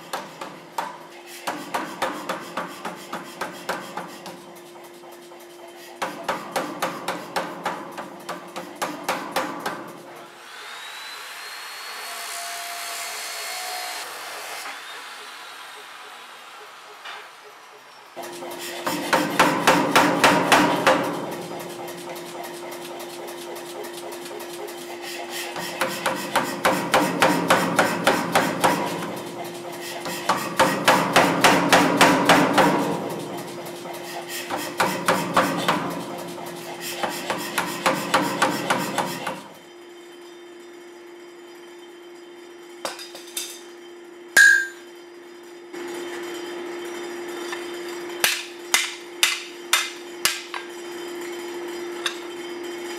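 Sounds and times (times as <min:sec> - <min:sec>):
power hammer pounding steel: 0:00.0 - 0:05.2, 0:06.0 - 0:10.0, 0:18.2 - 0:39.5, 0:48.2 - 0:50.8
ringing metal strike: 0:44.4 - 0:45.0.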